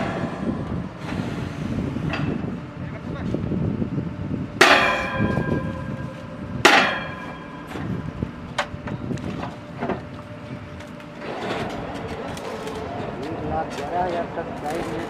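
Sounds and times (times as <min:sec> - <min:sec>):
steady low rumble: 0:00.0 - 0:15.0
ringing metal clangs: 0:04.6 - 0:08.2.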